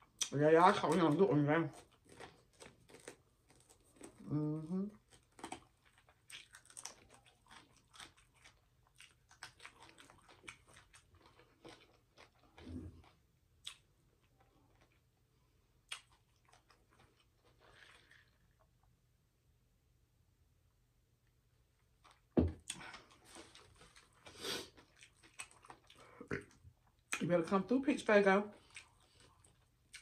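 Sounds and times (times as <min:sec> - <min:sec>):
person humming: 0:04.2 - 0:05.0.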